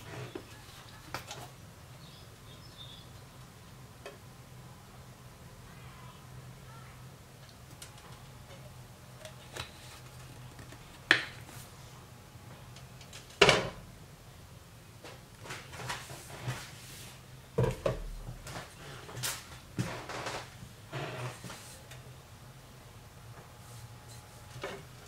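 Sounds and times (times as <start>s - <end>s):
kitchen knocks and clatters: 13.1s - 13.8s, 17.6s - 20.4s.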